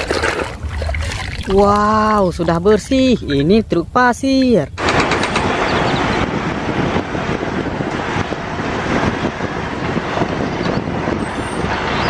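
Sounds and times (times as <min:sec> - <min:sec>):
wind buffeting microphone: 0:00.0 - 0:12.0
dump truck diesel engine: 0:04.8 - 0:12.0.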